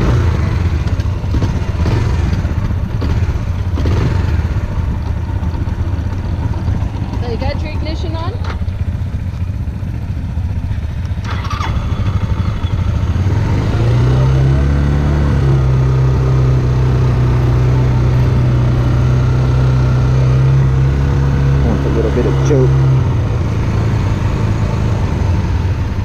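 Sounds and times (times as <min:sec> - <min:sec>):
motorcycle engine idling: 0:00.0 - 0:14.8.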